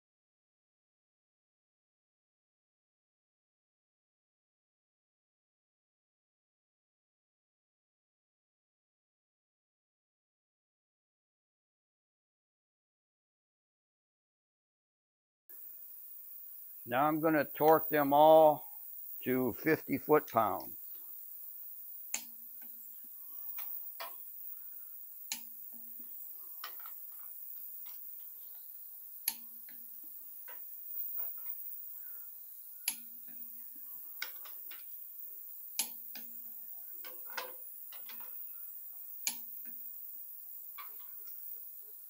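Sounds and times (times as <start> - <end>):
torque wrench clicking: 17.6 - 42.0
soft ticks and rustling: 21.9 - 42.0.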